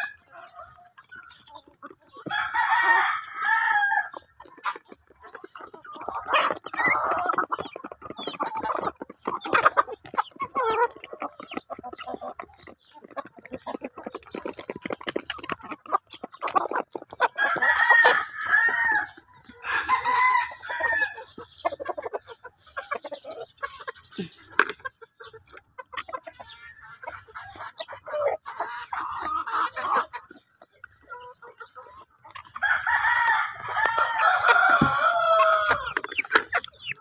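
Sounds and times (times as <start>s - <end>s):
roosters crowing: 0.0s - 1.0s, 2.2s - 4.3s, 17.1s - 21.4s, 32.4s - 37.0s
chickens clucking: 0.0s - 37.0s.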